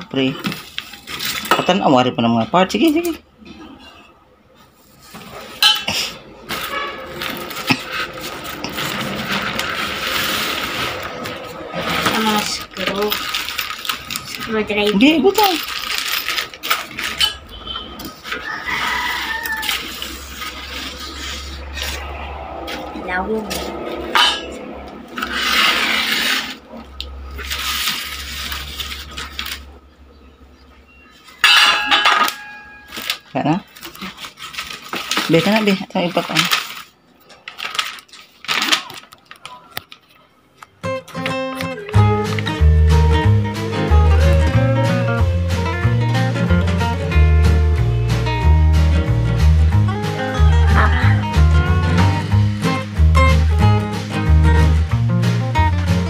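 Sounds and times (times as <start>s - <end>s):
cardboard and foam rustling: 0.2s - 1.8s, 6.4s - 17.3s, 27.3s - 29.7s, 32.9s - 40.0s
metal tubes clinking: 5.2s - 22.9s, 31.3s - 35.3s
cardboard scraping and rustling: 6.4s - 14.8s, 25.2s - 29.7s
metal tubes knocking and clinking: 31.4s - 33.2s
metal clatter: 31.4s - 33.3s.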